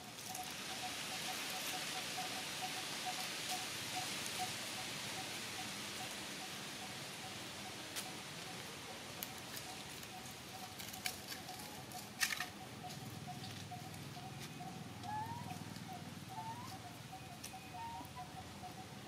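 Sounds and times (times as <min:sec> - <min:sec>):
dry leaves crackling: 0:00.1 - 0:04.4, 0:07.9 - 0:18.3.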